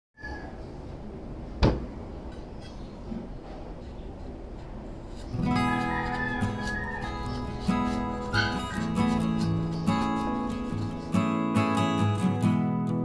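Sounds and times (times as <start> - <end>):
acoustic guitar music: 5.1 - 13.0.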